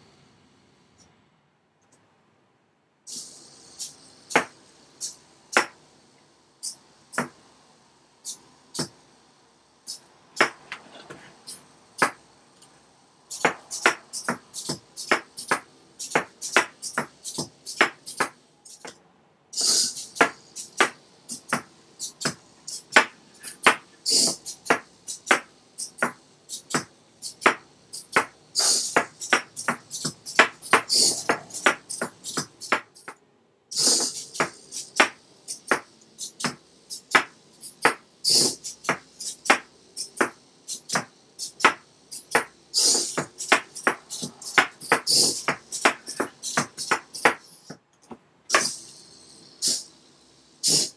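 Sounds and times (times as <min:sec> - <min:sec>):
short hissy bursts: 0:03.1 - 0:18.9, 0:19.5 - 0:47.8, 0:48.5 - 0:50.9
robot feet tapping tabletop: 0:03.8 - 0:05.8, 0:13.3 - 0:19.0, 0:19.6 - 0:48.8
servos clicking and whirring: 0:09.8 - 0:19.0, 0:19.6 - 0:48.9.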